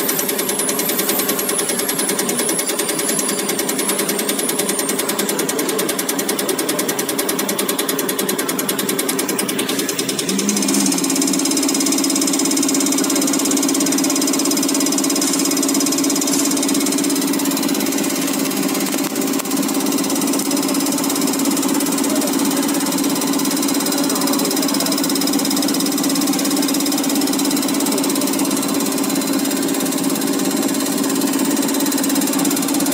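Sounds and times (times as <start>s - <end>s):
injector clattering: 0.0s - 22.1s
test bench pump running: 0.0s - 32.9s
hum with high whine: 9.6s - 11.8s.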